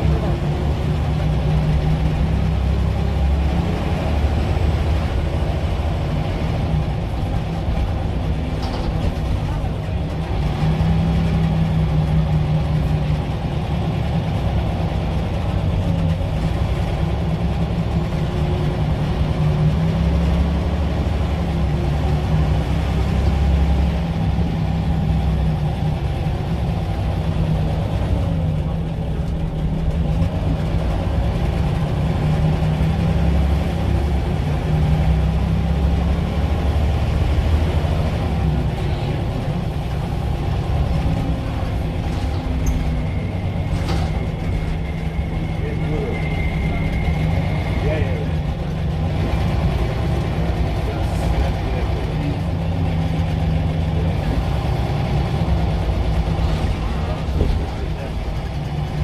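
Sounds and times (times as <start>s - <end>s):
bus diesel engine humming: 0.0s - 59.0s.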